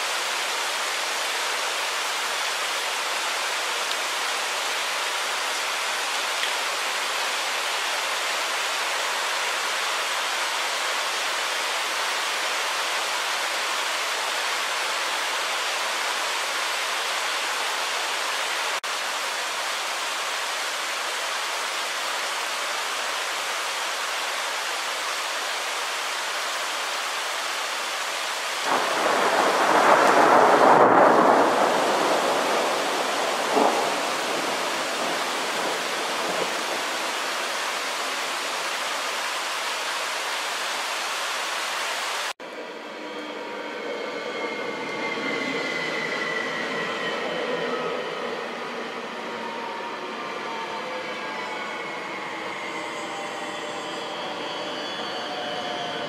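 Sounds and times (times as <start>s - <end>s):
hail and rain falling: 28.6s - 40.0s
thunder peal: 28.7s - 37.2s.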